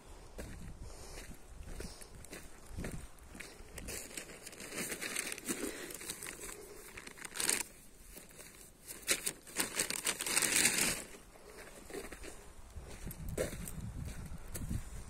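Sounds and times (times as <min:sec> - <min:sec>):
footsteps on gravel: 0:00.3 - 0:15.0
crackly rustling: 0:01.8 - 0:14.8.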